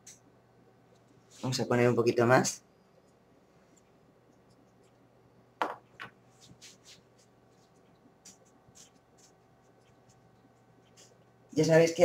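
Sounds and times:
fingers rustling: 6.2s - 11.4s.

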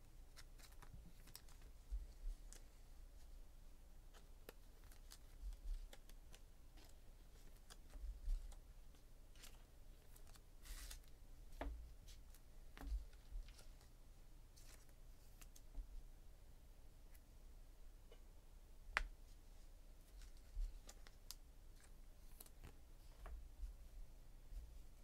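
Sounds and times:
cards clicking and rustling: 0.3s - 1.7s, 4.2s - 8.6s.

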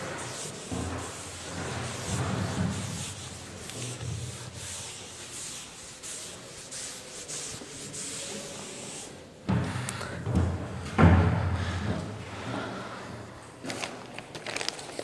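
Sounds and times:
duster rubbing chalkboard: 0.0s - 9.3s.

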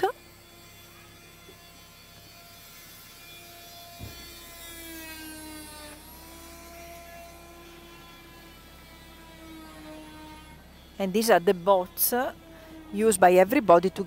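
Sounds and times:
motorboat engine whining: 4.0s - 14.0s.

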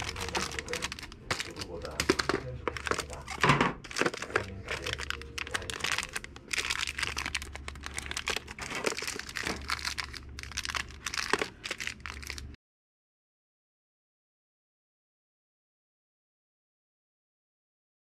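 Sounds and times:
plastic packaging crinkling: 0.0s - 12.6s.

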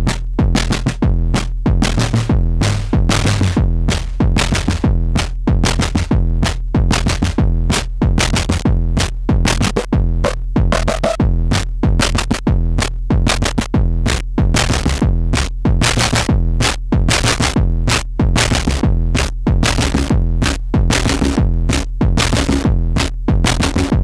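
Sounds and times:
heavy low synth bass: 0.0s - 24.0s
synthesizer percussive hits: 9.5s - 11.3s.

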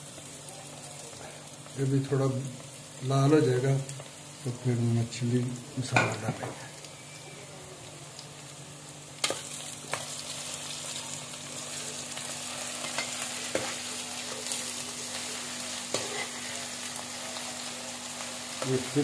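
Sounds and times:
onions sizzling in oil: 0.0s - 19.0s
metal spoon scraping pan: 15.9s - 16.4s.

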